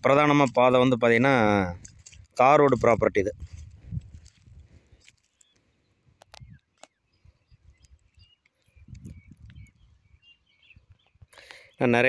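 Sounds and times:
small birds chirping: 0:00.1 - 0:12.0
wind rumble on microphone: 0:01.6 - 0:04.9, 0:06.2 - 0:06.6, 0:07.2 - 0:11.3.

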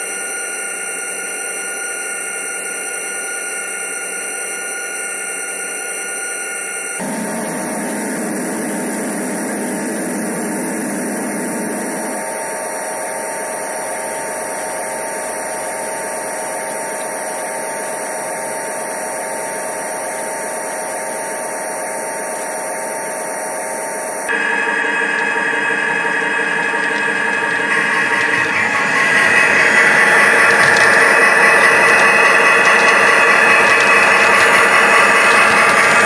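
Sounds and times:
faint constant tones: 0:00.0 - 0:36.0
model train motor whirring: 0:07.0 - 0:24.2, 0:26.0 - 0:36.0.

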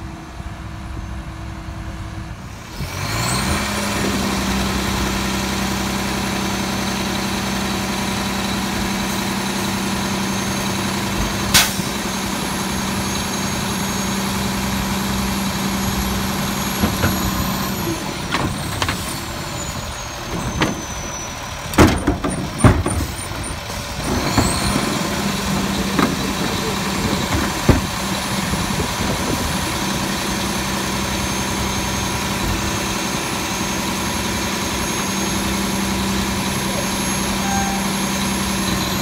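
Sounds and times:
garbage truck engine whining: 0:00.1 - 0:39.0
loud metal clanks: 0:21.7 - 0:28.2.

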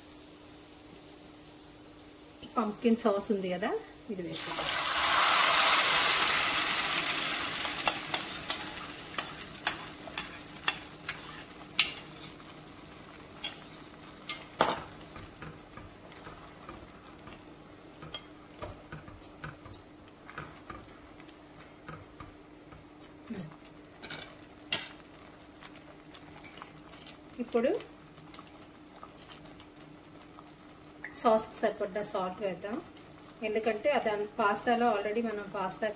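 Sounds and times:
sauce sizzling in hot oil: 0:00.0 - 0:35.9
spoon stirring and scraping pot: 0:07.6 - 0:27.4, 0:28.2 - 0:29.8.

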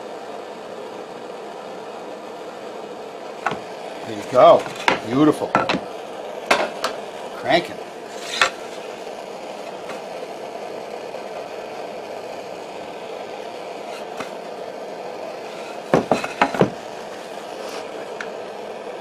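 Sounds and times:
blowtorch hissing: 0:00.0 - 0:19.0
wooden board knocks: 0:03.4 - 0:03.6, 0:15.9 - 0:16.8.

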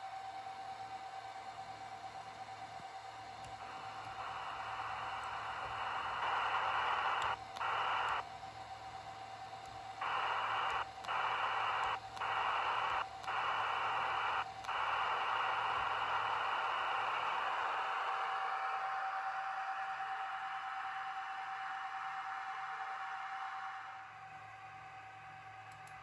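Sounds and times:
radio static hiss: 0:03.5 - 0:08.3, 0:09.5 - 0:24.0
steady radio tone: 0:03.6 - 0:08.2, 0:10.0 - 0:24.0.

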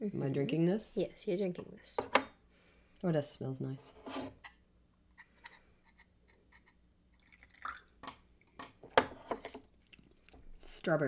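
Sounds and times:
tea dripping from teapot: 0:07.1 - 0:08.0.

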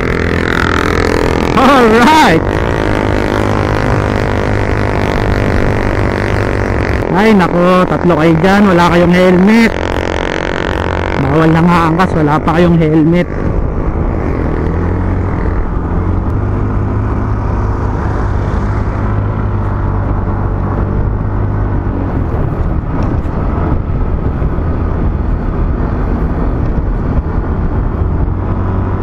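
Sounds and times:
motorcycle engine running: 0:00.0 - 0:29.0
wind and road rush: 0:00.0 - 0:29.0.

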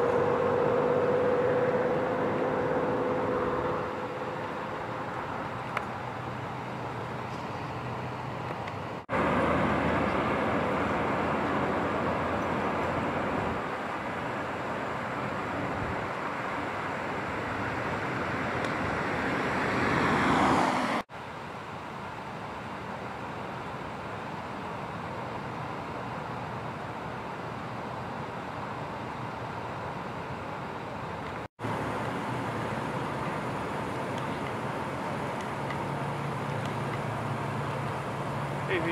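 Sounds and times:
road traffic rush: 0:00.0 - 0:38.9
car passing close by: 0:16.9 - 0:21.1.

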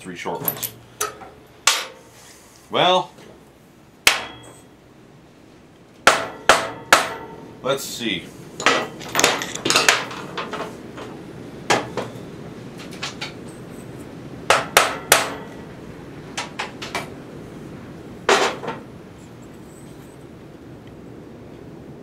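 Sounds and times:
hammer knocking on metal: 0:06.0 - 0:07.4, 0:14.5 - 0:15.6.

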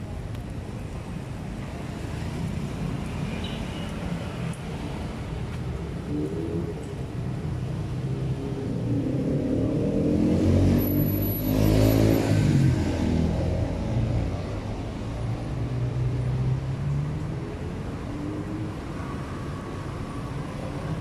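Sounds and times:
vehicle engine passing: 0:08.2 - 0:14.2.

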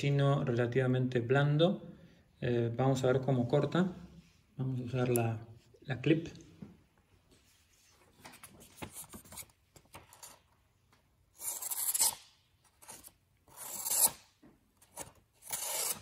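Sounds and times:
knife slicing paper: 0:14.9 - 0:16.0.

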